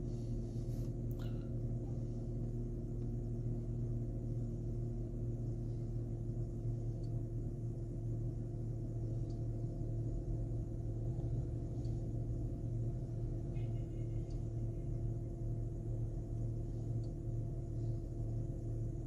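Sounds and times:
low hum inside a car: 0.0s - 19.0s
faint light ticks: 6.9s - 7.2s, 9.2s - 9.6s, 11.8s - 12.0s, 13.5s - 14.6s, 16.9s - 17.2s.

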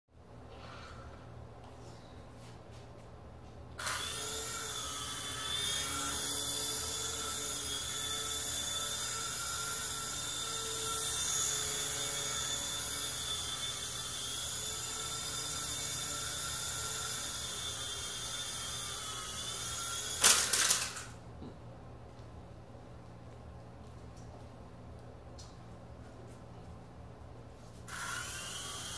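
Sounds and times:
toy helicopter motor whine: 3.8s - 21.2s, 27.9s - 28.9s.

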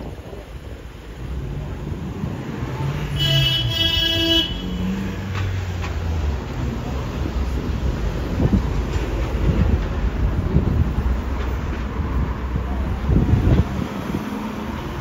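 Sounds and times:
road traffic passing: 0.0s - 15.0s
vehicle horn: 3.1s - 5.2s.

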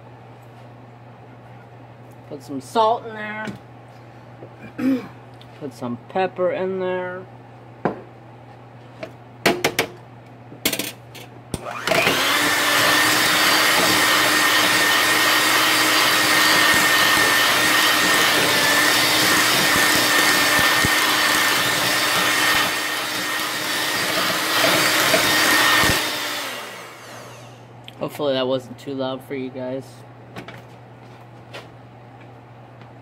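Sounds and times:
electric mixer whipping potatoes: 11.6s - 27.7s.

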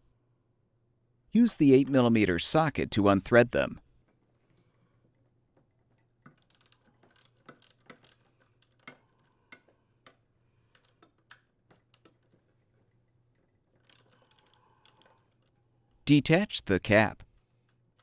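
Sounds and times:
ratchet wrench clicking: 6.4s - 9.2s.

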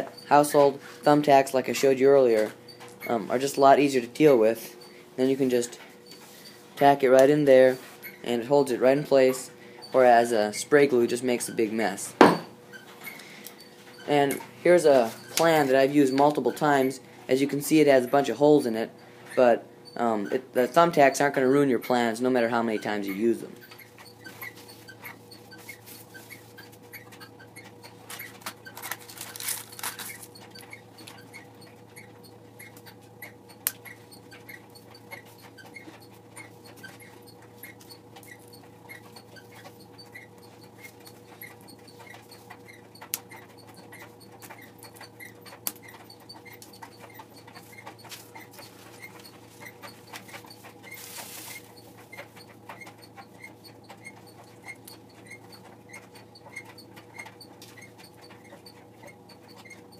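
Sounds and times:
electrical hum: 0.0s - 59.9s
faint regular ticking: 12.7s - 59.9s
paper rustling and sliding: 50.3s - 51.8s.

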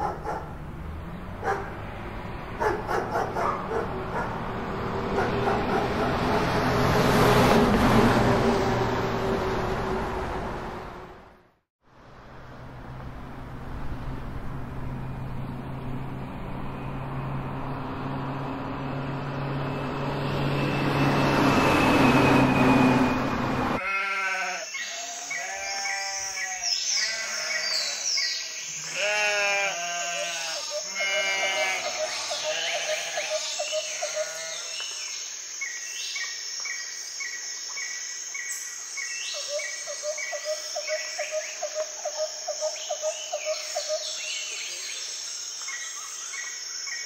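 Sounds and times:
vehicle engine humming: 0.0s - 23.8s
livestock bleating: 23.8s - 24.6s, 25.3s - 28.1s, 28.8s - 33.3s.

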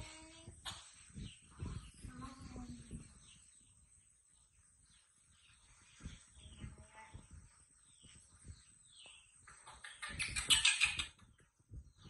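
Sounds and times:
soft low thumps: 0.0s - 4.8s, 5.5s - 9.6s, 11.3s - 12.0s.

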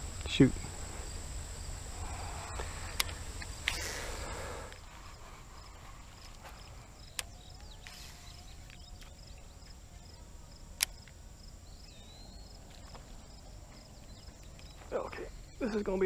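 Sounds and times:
constant high buzz: 0.0s - 16.0s
insects chirping: 0.0s - 16.0s
sharp clicks: 2.6s - 3.9s, 7.0s - 9.2s, 10.8s - 11.2s.

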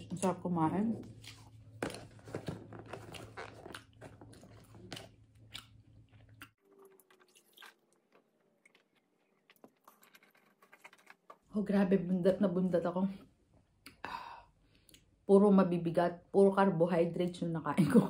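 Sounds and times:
close-mic chewing: 2.8s - 11.5s.

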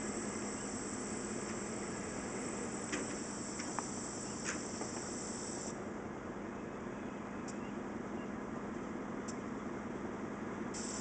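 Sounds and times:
high hiss: 0.0s - 5.8s, 10.8s - 11.0s
diesel locomotives idling: 0.0s - 11.0s.

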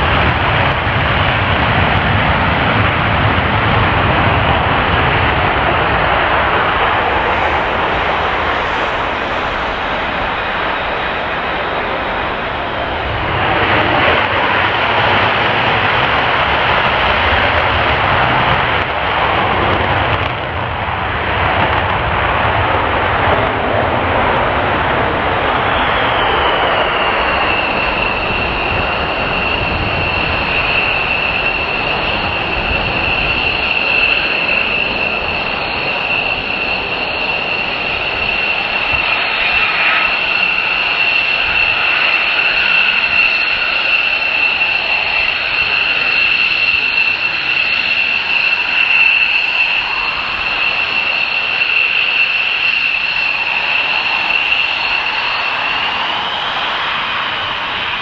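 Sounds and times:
jet roar with high whine: 0.0s - 58.0s.

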